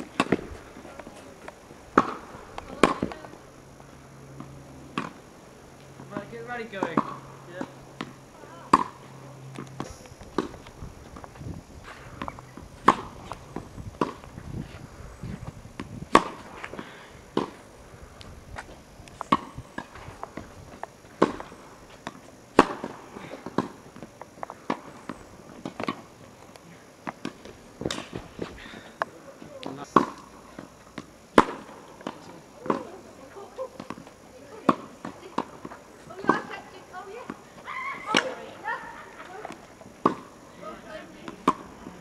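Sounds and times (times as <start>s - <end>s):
tennis ball bouncing on court: 0.0s - 1.1s, 1.9s - 3.4s, 6.0s - 11.3s, 12.2s - 14.4s, 15.8s - 17.6s, 19.2s - 20.5s, 21.1s - 26.0s, 29.0s - 33.0s, 33.8s - 38.5s, 39.4s - 40.3s, 41.0s - 42.0s
tennis racket hitting ball: 0.0s - 1.1s, 1.9s - 3.2s, 6.2s - 9.1s, 12.1s - 14.3s, 16.1s - 17.6s, 21.1s - 23.8s, 30.0s - 33.0s, 39.4s - 40.3s, 41.2s - 41.8s.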